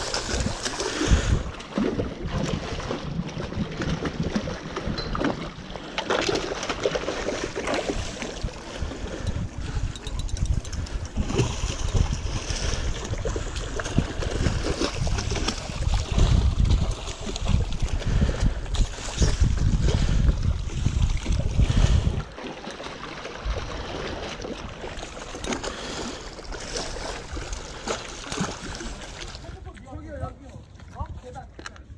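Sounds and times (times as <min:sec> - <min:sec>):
wind buffeting microphone: 0:00.0 - 0:05.7, 0:06.3 - 0:22.4
seawater lapping and splashing: 0:00.0 - 0:31.9.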